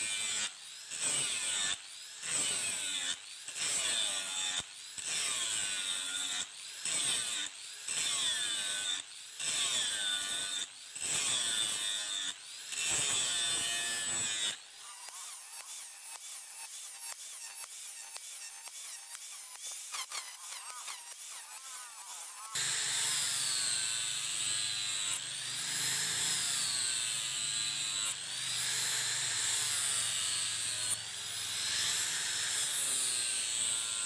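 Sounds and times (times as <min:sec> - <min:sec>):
hand tool scraping: 0:08.8 - 0:23.2.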